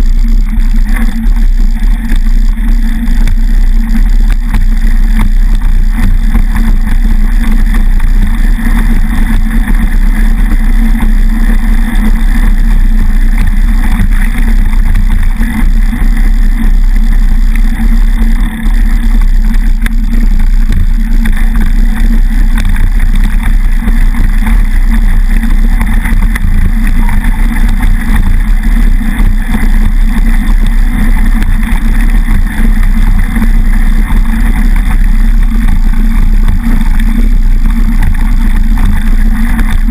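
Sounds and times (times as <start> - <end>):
bike tyres on gravel: 0.0 - 39.9
wind rumble on camera: 0.0 - 39.9.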